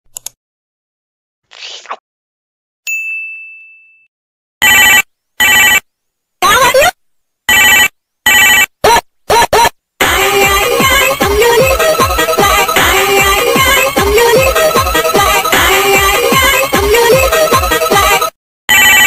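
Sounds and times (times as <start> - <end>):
ding: 2.9 - 4.1.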